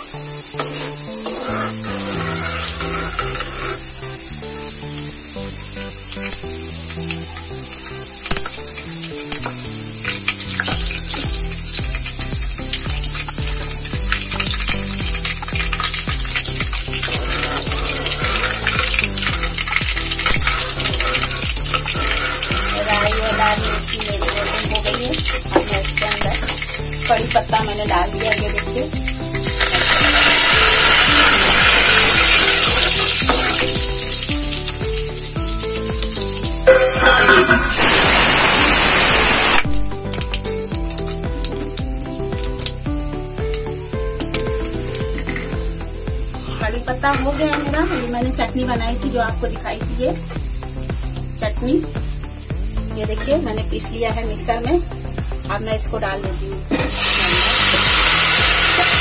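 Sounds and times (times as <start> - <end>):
background music: 0.0 - 59.0
seeds crackling in hot oil: 0.0 - 59.0
ladle stirring in a pot: 0.4 - 4.6, 5.8 - 38.0, 44.2 - 48.2.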